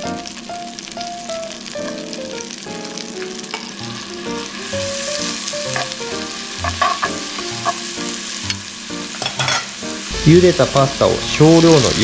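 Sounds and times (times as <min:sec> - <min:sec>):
butter sizzling in a frying pan: 0:00.0 - 0:12.0
metal tongs clicking on pan: 0:06.6 - 0:07.8.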